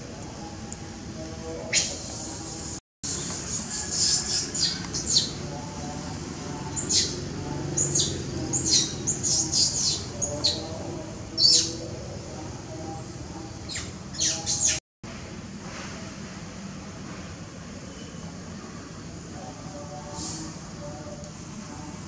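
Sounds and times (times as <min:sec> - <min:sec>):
young monkey squealing: 0:03.1 - 0:05.3.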